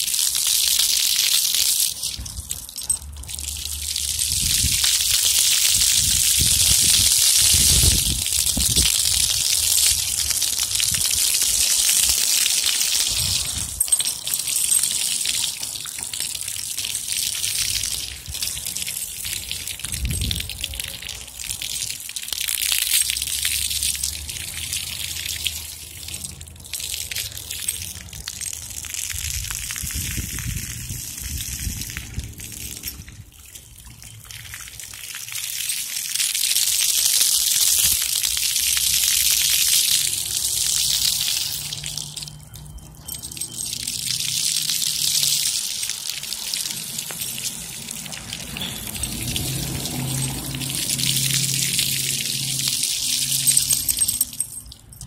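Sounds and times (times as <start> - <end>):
water splashing on pavement: 0.0 - 55.0
small water splashes: 30.8 - 54.6
fountain spray hissing: 44.1 - 53.8.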